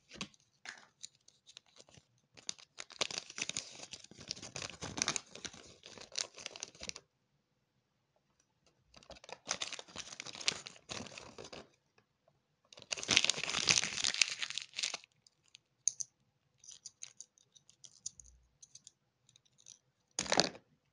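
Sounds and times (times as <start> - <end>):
wrapper crinkling and tearing: 1.7 - 7.0, 9.1 - 11.6, 12.8 - 15.1.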